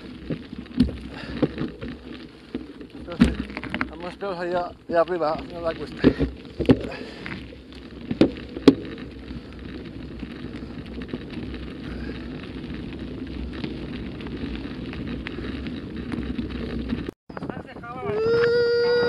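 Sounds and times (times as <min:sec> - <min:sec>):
bike jolting knocks: 0:00.0 - 0:09.0
bike tyres rolling on gravel: 0:00.0 - 0:19.0.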